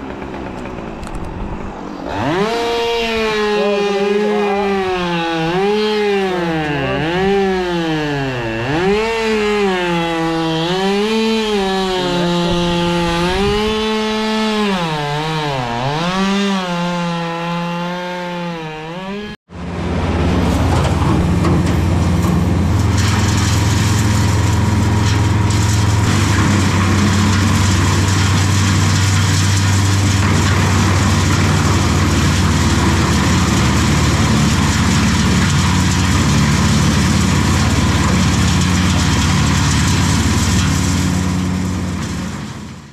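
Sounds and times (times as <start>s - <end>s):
wood chipper running: 0.0s - 42.9s
chainsaw cutting: 1.9s - 42.9s.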